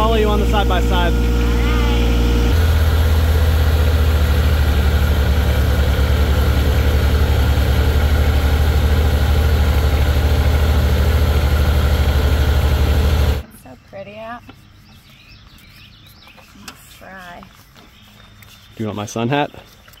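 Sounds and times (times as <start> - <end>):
vehicle engine droning: 0.0 - 13.4.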